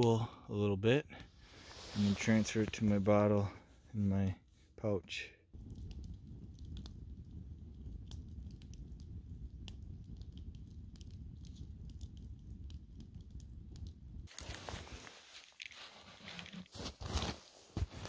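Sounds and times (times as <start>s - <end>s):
campfire crackling and popping: 5.5s - 17.8s.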